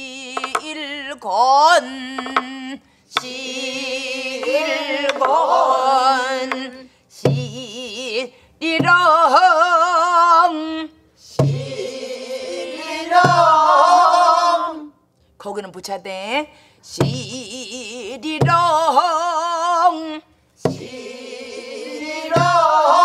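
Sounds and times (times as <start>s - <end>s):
group singing: 0.0s - 1.0s, 1.6s - 10.6s, 11.2s - 15.0s, 20.6s - 23.0s
woman singing: 0.0s - 11.8s, 16.3s - 21.1s
barrel drum strokes: 13.1s - 13.7s, 20.6s - 20.9s, 22.2s - 23.0s.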